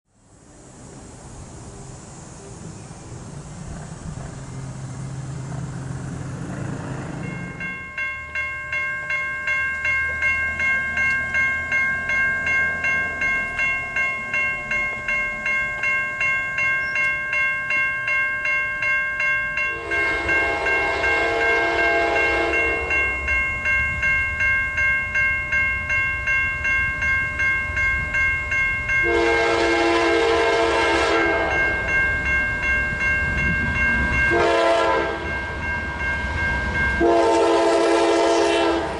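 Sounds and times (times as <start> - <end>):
low rumble of train: 0.1 - 38.9
crossing bell ringing: 4.2 - 38.9
locomotive horn blasts: 19.7 - 23.2, 29.0 - 31.9, 34.3 - 35.4, 37.0 - 38.9.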